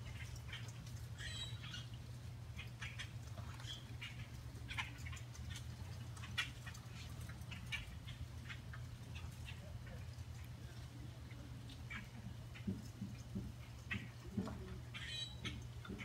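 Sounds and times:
steady low hum: 0:00.0 - 0:16.0
bird chips and calls: 0:00.1 - 0:02.0, 0:02.6 - 0:09.6, 0:14.9 - 0:16.0.

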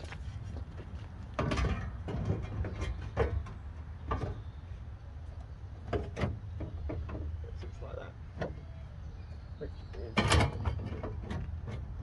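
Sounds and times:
low steady background rumble: 0:00.0 - 0:12.0
light knocks and rattles: 0:00.7 - 0:04.5, 0:05.8 - 0:08.6.

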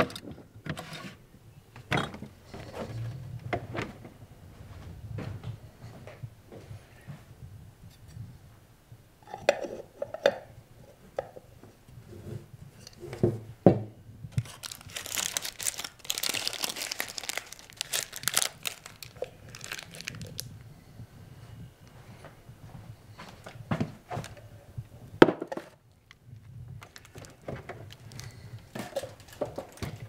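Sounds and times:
foil wrapper crinkling: 0:14.4 - 0:20.5, 0:26.8 - 0:30.0.

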